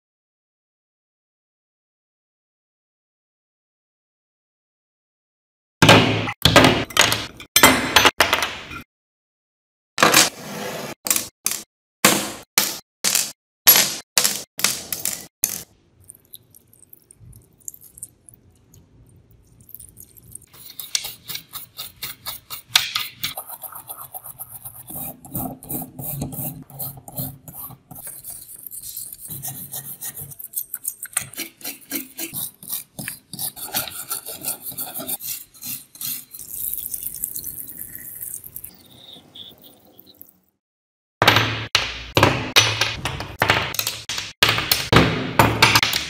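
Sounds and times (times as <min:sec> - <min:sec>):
brush scrubbing rust off steel: 0:20.5 - 0:37.4.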